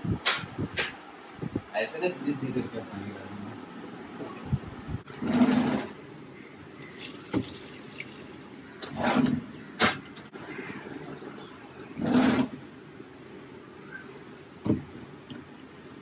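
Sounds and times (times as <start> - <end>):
water splashing onto soil: 6.9 - 8.4.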